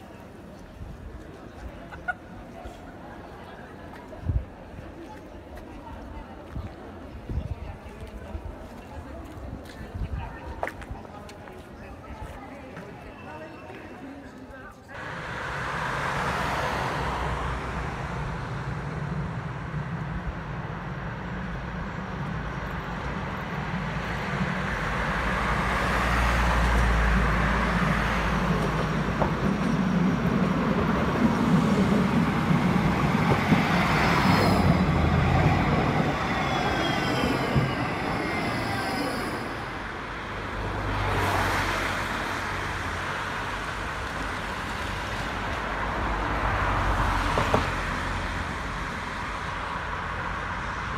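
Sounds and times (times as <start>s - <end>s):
road traffic: 0.0s - 50.9s
tram wheels rumbling on rails: 14.9s - 50.9s
tram motors whining: 26.7s - 40.7s.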